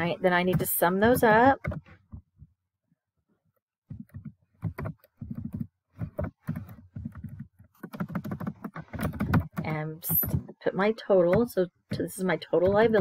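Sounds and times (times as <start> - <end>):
typing on computer keyboard: 3.9 - 10.4.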